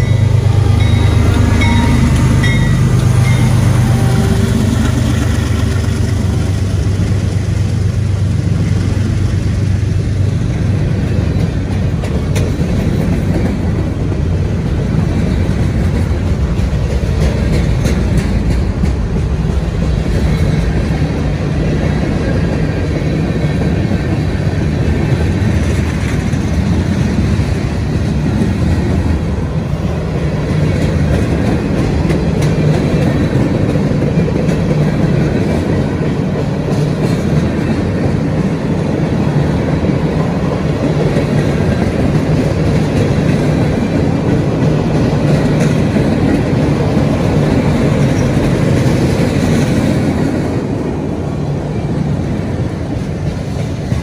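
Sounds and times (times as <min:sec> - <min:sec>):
wheels clicking over rail joints: 0:00.0 - 0:50.9
steel wheels rumbling on rail: 0:00.0 - 0:54.0.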